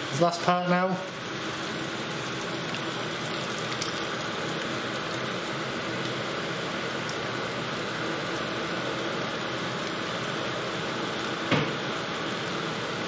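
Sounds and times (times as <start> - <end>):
sauce sizzling in frying pan: 0.0 - 13.0
gravy being poured: 1.0 - 11.4.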